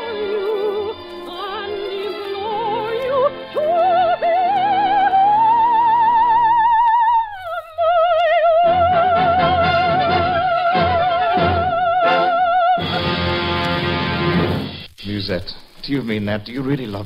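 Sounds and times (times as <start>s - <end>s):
orchestral accompaniment: 0.0s - 6.0s, 8.7s - 14.9s
operatic soprano singing: 0.0s - 13.6s.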